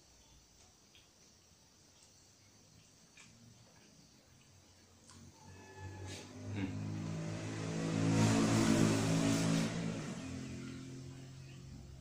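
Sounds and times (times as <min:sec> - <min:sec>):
vehicle engine passing by: 0:05.2 - 0:12.0.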